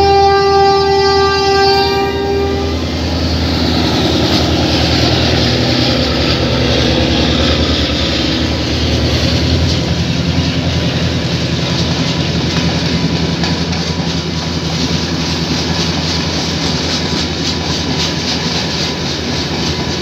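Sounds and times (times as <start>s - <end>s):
train horn: 0.0s - 3.2s
diesel engine drone: 0.0s - 16.5s
train wheels clattering on rails: 3.0s - 20.0s.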